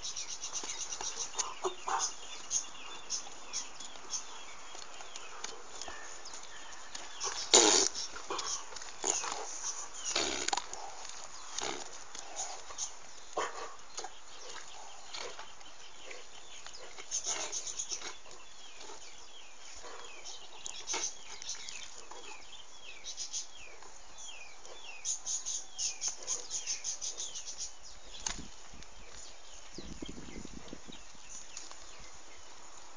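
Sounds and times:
donkey hooves knocking and scuffing: 0.0s - 15.9s
donkeys grunting: 0.5s - 3.6s, 5.1s - 21.3s.

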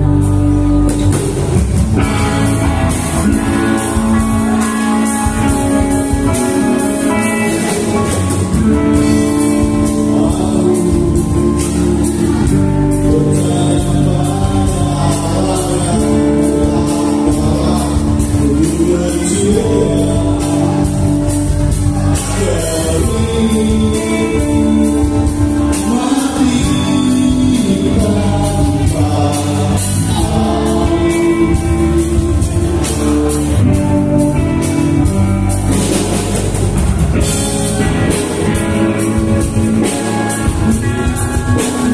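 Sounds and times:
live band playing loud: 0.0s - 41.9s
crowd singing along: 1.2s - 33.8s.

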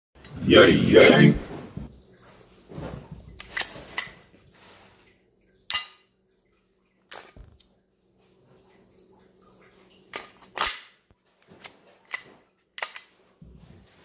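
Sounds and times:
pistol clicks and snaps: 12.8s - 13.1s.

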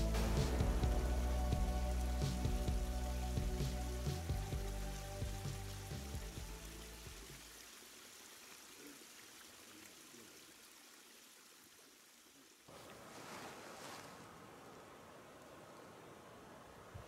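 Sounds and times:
loud hiss: 0.0s - 6.2s
background music: 0.0s - 7.5s
outdoor ambience hiss: 0.0s - 17.0s.

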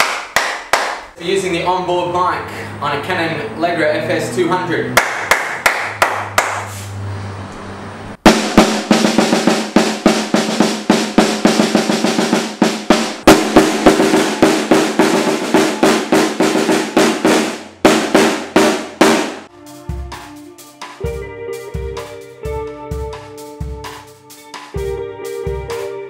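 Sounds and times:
hand claps: 0.0s - 1.2s, 5.0s - 6.7s
snare drum rolls: 8.2s - 19.5s.

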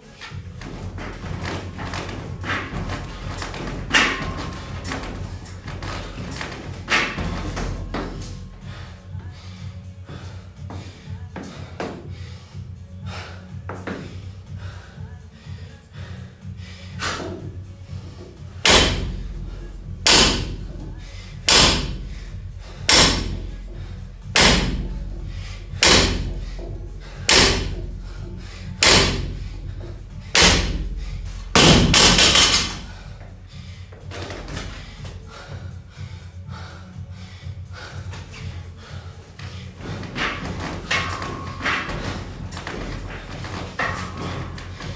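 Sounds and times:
barbell thudding on wooden platform: 0.5s - 8.7s, 18.6s - 33.2s, 39.8s - 44.9s
barbell clattering down: 0.6s - 8.5s, 18.7s - 33.0s, 39.8s - 44.9s.

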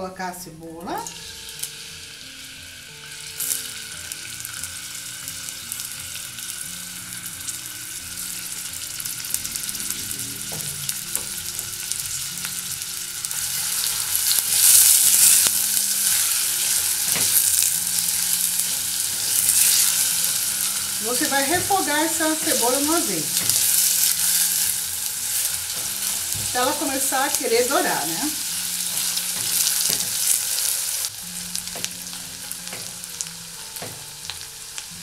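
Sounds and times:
onion sizzling in hot oil: 0.7s - 35.0s.

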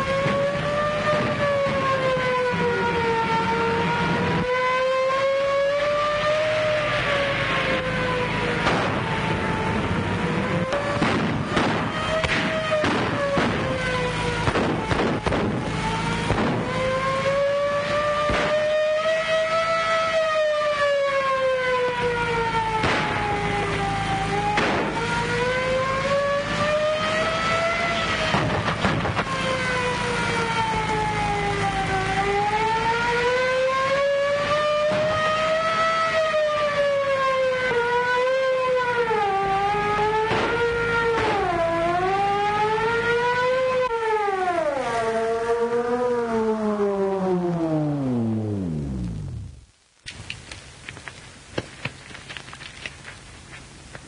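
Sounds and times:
police siren wailing: 0.0s - 49.6s
gunshots: 8.6s - 9.1s, 10.7s - 13.8s, 14.4s - 16.7s, 18.3s - 18.7s, 22.8s - 23.2s, 24.5s - 25.0s, 40.3s - 40.6s
sharp cracks: 8.6s - 9.1s, 10.7s - 16.9s, 18.2s - 18.8s, 22.8s - 23.8s, 24.5s - 25.1s, 40.2s - 41.5s, 48.8s - 53.3s.

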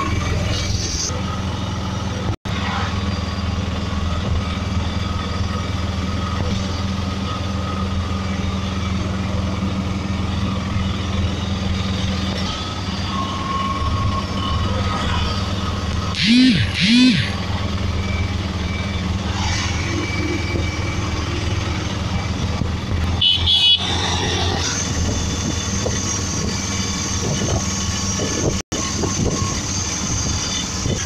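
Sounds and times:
road and wind noise: 0.0s - 31.0s
small engine running: 16.1s - 18.8s.

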